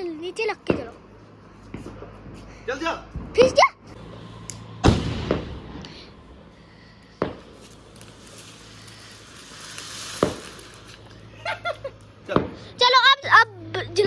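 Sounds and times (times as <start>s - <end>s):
fountain firework hissing: 4.1s - 12.8s
firecracker bangs: 4.8s - 5.9s, 7.2s - 11.1s, 12.3s - 12.7s.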